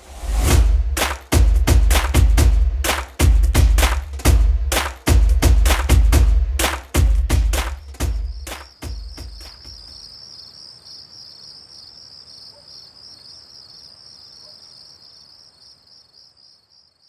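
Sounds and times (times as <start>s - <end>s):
music drum beats: 0.0s - 9.9s
crickets chirping: 8.1s - 17.0s.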